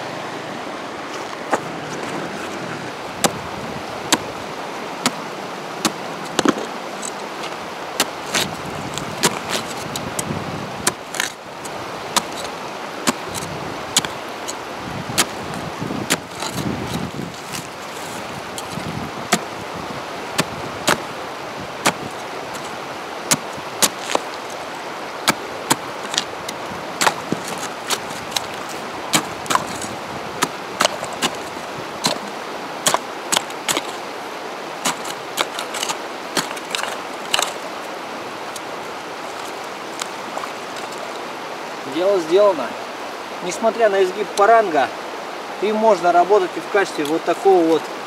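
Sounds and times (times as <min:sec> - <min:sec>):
river flowing: 0:00.0 - 0:48.0
blade chopping ice: 0:03.2 - 0:03.4, 0:05.0 - 0:19.6, 0:20.3 - 0:34.1, 0:34.8 - 0:37.6.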